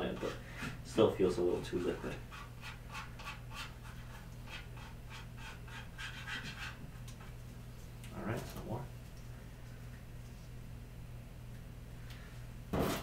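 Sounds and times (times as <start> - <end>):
faint hum: 0.0 - 13.0
stick scraping mixing cup: 1.6 - 7.4.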